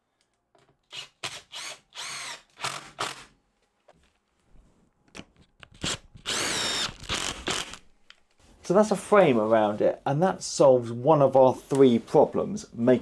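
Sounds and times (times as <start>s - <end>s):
cordless drill driving screws into wood: 0.9s - 3.3s, 5.8s - 7.8s.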